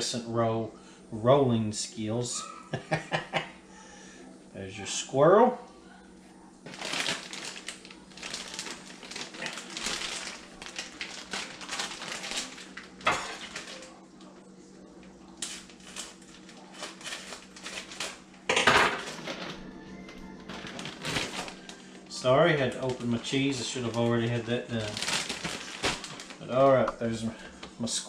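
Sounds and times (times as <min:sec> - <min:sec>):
plastic bag crinkling: 0:06.6 - 0:14.0, 0:15.4 - 0:27.4
plastic bag snap: 0:06.7 - 0:13.9, 0:20.5 - 0:21.8, 0:24.8 - 0:26.4.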